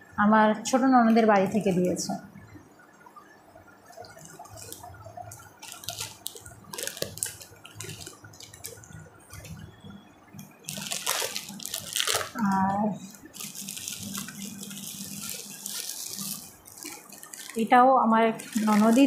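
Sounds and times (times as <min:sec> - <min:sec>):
fabric rustling: 0:05.5 - 0:09.7, 0:10.6 - 0:17.7, 0:18.3 - 0:19.0.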